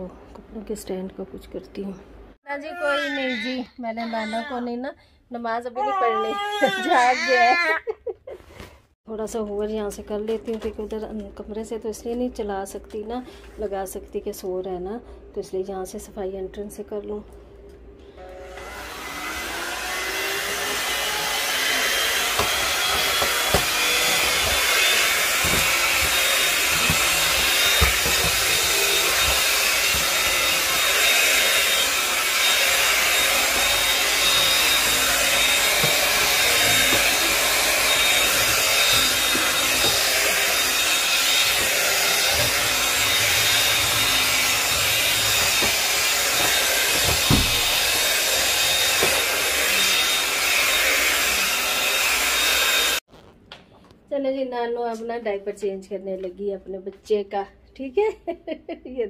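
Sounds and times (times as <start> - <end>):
vacuum cleaner running: 18.1 - 53.1.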